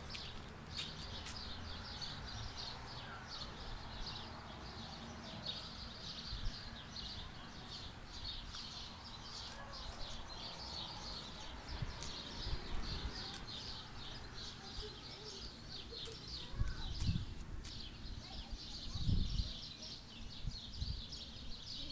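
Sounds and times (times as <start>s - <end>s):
birds chirping: 0.0s - 21.9s
wind on microphone: 16.5s - 17.7s, 18.8s - 21.6s.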